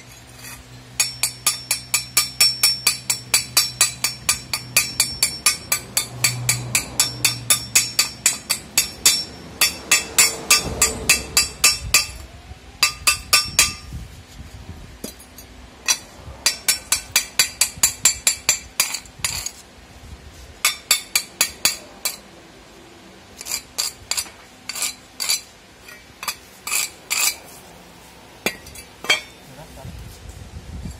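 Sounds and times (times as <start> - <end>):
hand tool tapping thin metal: 0.4 - 12.2, 12.8 - 13.9, 15.0 - 19.6, 20.6 - 22.2, 23.4 - 27.4.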